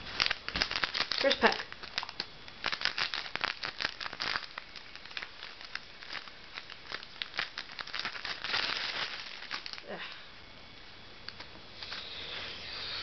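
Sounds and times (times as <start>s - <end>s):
foil wrapper crinkling and tearing: 0.0s - 10.2s.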